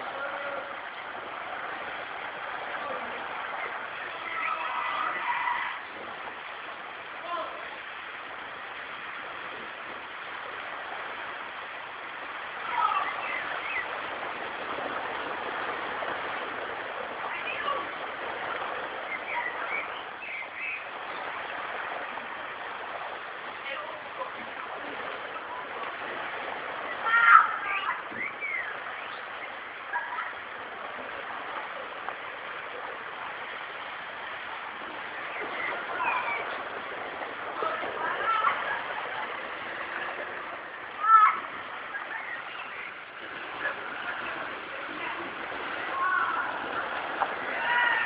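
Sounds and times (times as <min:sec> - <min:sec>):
faint distant voices: 0:00.0 - 0:48.0
water splashing: 0:00.0 - 0:48.0
children's voices: 0:26.9 - 0:28.6, 0:29.8 - 0:30.5, 0:35.8 - 0:36.6, 0:37.6 - 0:39.4, 0:40.8 - 0:48.0.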